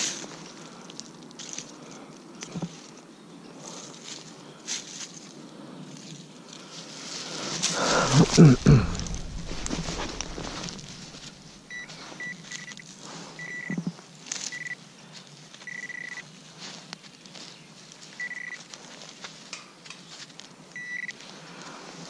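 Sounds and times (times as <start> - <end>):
soft rustling: 3.6 - 22.0
metal detector beeps: 11.7 - 13.9, 14.5 - 14.8, 15.6 - 16.3, 18.2 - 18.6, 20.7 - 21.2.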